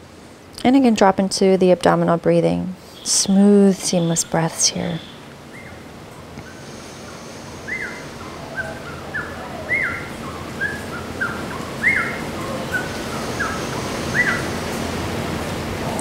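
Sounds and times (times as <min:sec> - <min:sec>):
steady background hiss: 0:00.0 - 0:16.0
animal calling high: 0:07.6 - 0:14.6.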